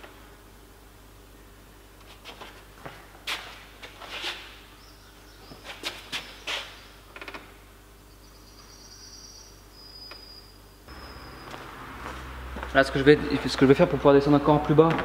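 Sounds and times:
faint high whistle: 8.6 - 11.5.

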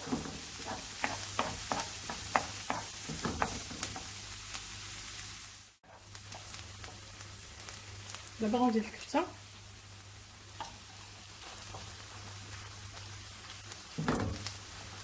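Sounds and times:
wooden spatula scraping pan: 0.0 - 4.1
onion sizzling in frying pan: 0.0 - 15.0.

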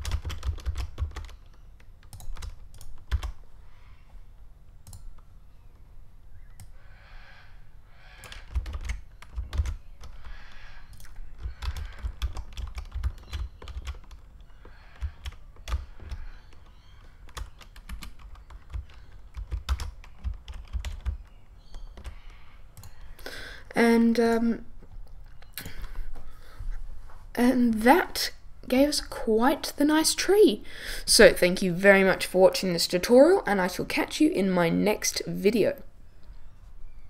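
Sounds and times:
computer keyboard typing: 0.0 - 3.4, 4.8 - 5.2, 8.2 - 23.2.

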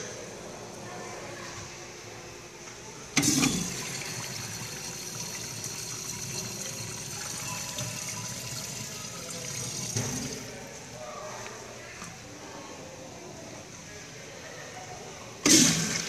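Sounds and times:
urinal flushing: 3.2 - 10.8, 15.4 - 16.0.

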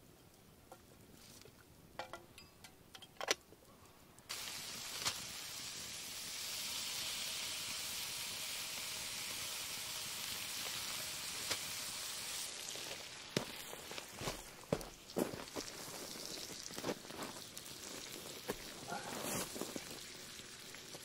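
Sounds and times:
bacon sizzling in frying pan: 4.3 - 21.0.

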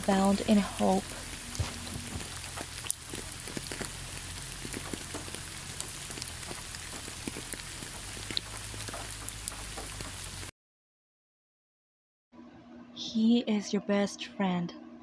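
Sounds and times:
rain falling: 0.0 - 10.5
raindrop taps: 0.0 - 10.5.

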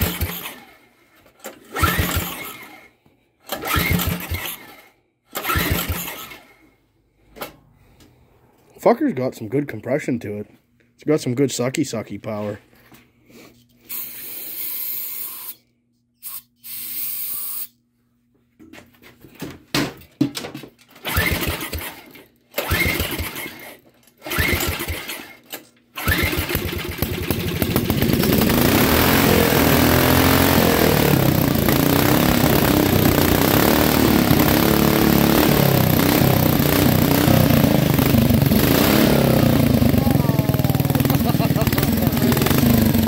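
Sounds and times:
go-kart engine running: 0.0 - 0.6, 1.7 - 2.6, 3.5 - 4.6, 5.4 - 6.4, 21.0 - 22.0, 22.6 - 25.4, 26.0 - 43.0
recoil starter pulls: 0.0 - 6.6, 20.8 - 43.0.

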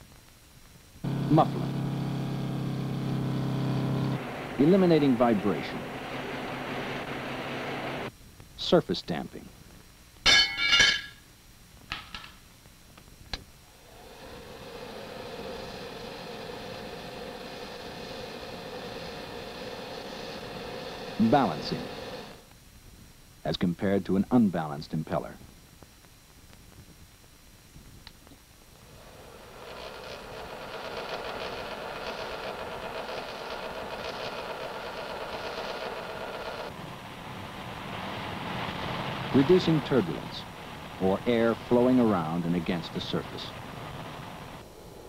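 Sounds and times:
electric blower humming: 1.0 - 8.1, 13.3 - 22.5, 28.7 - 36.8.

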